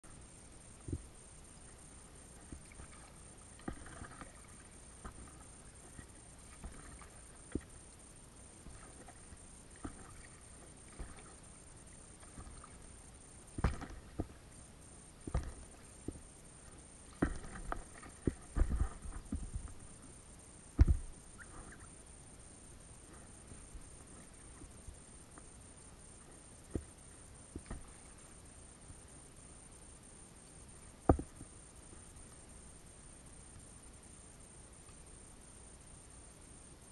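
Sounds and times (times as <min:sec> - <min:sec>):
low hiss: 0:00.0 - 0:36.9
paddle knocks and water splashes: 0:02.5 - 0:07.8, 0:08.6 - 0:14.4, 0:15.2 - 0:16.3, 0:17.0 - 0:20.0, 0:20.7 - 0:21.8, 0:26.6 - 0:28.2, 0:31.0 - 0:31.5.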